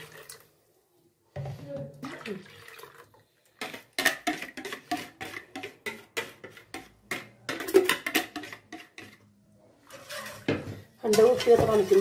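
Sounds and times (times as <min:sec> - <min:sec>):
plastic bowl knocking on metal pot: 0:10.5 - 0:12.0.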